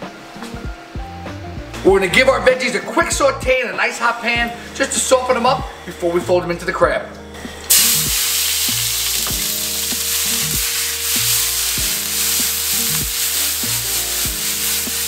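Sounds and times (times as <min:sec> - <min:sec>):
vegetables sizzling in a pan: 0:07.7 - 0:15.0.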